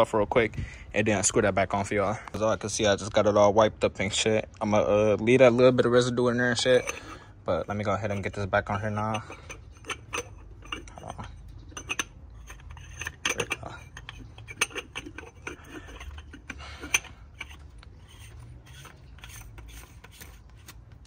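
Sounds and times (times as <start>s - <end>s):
metal clicks and scraping: 6.6s - 21.0s.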